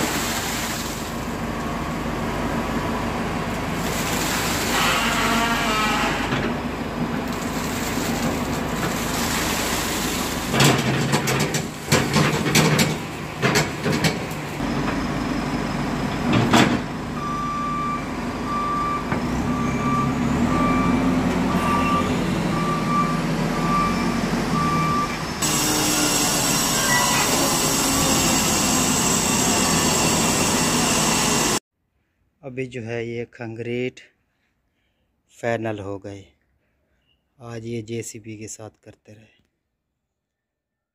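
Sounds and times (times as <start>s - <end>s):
backhoe loader engine running: 10.3s - 31.6s
sharp metal clanks and knocks: 10.5s - 14.4s
reversing alarm beeps: 17.2s - 25.2s.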